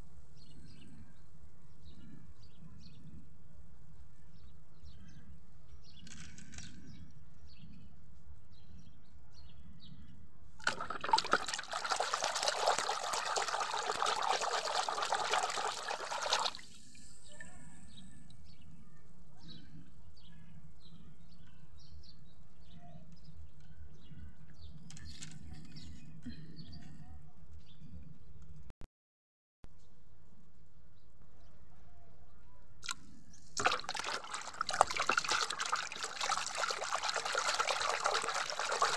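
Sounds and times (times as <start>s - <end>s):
water splashing into basin: 10.6s - 17.0s, 33.6s - 38.9s.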